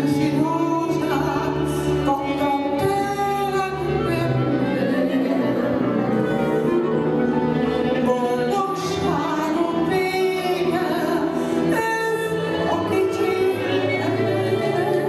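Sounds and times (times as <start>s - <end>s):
double bass: 0.0s - 15.0s
violin: 0.0s - 15.0s
woman singing into microphone: 0.0s - 15.0s
clarinet: 3.4s - 8.9s, 12.0s - 15.0s.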